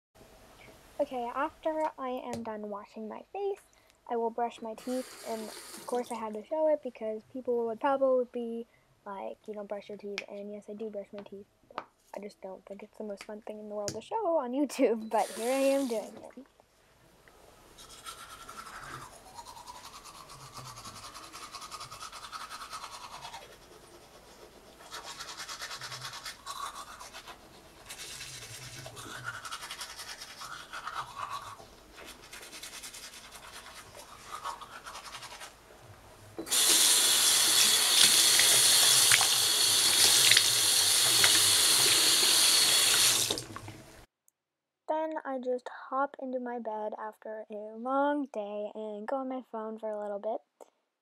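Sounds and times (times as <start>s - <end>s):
sink tap running: 4.8s - 6.0s, 36.4s - 43.8s
toothbrush scrubbing teeth: 4.8s - 6.2s, 15.2s - 16.2s, 17.8s - 35.6s, 36.5s - 43.4s.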